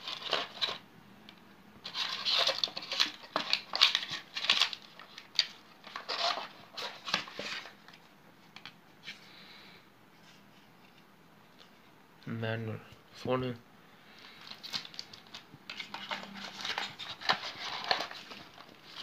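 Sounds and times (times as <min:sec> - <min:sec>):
cardboard box rustling and scraping: 0:15.7 - 0:19.0.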